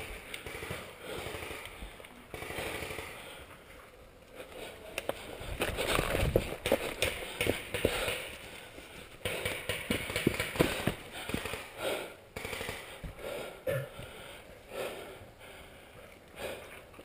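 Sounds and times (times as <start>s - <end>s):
rustling of leaves and gear: 0.0s - 13.2s.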